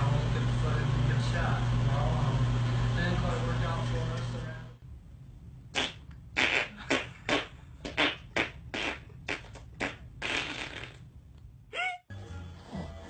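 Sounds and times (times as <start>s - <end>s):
baby squealing: 11.7s - 12.1s.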